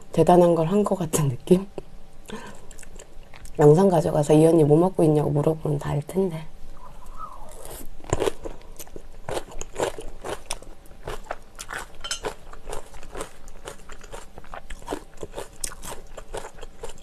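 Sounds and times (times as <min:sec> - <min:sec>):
mouth chewing with clicks and smacks: 0:02.4 - 0:03.6, 0:07.0 - 0:17.0.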